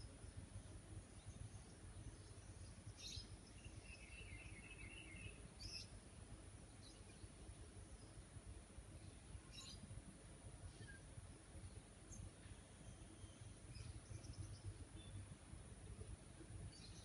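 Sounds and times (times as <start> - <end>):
faint background noise: 0.0 - 17.0
bird chirps: 1.0 - 6.0, 9.0 - 9.9, 10.7 - 15.3, 16.7 - 17.0.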